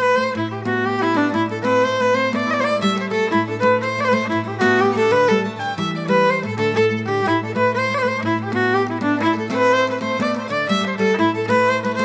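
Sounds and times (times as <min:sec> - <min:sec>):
fiddle melody: 0:00.0 - 0:12.0.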